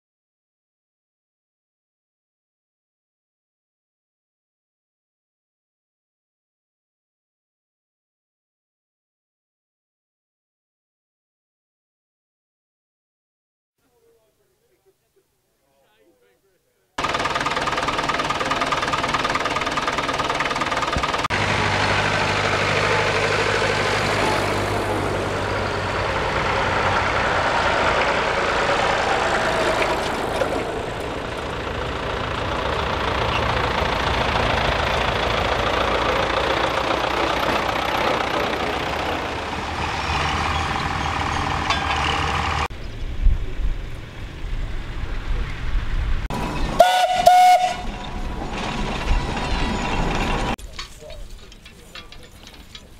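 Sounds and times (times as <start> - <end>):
tractor engines running: 17.0 - 52.9.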